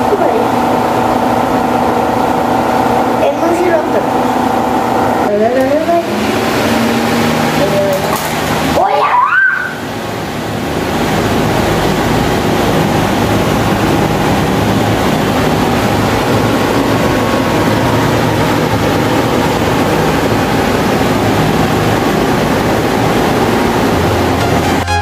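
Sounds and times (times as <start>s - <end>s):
fan rushing air: 0.0s - 25.0s
short rising whistle: 9.1s - 9.8s.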